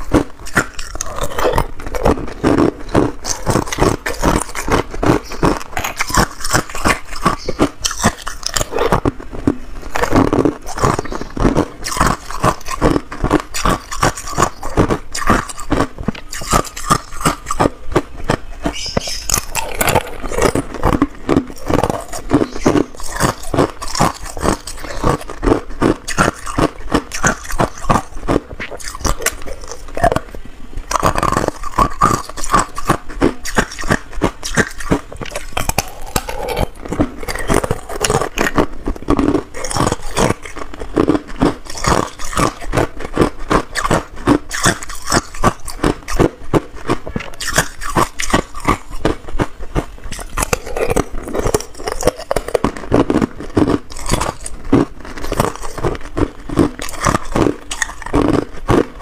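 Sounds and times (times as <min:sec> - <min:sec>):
ice cubes being crunched: 0:19.2 - 0:30.3, 0:30.9 - 0:59.0.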